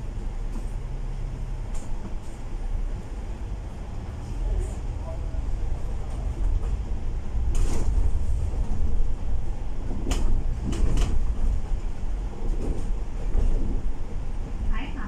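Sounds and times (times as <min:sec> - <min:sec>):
bus body rattling and knocking: 0:00.0 - 0:03.8, 0:05.6 - 0:15.0
bus engine and road rumble: 0:00.0 - 0:15.0.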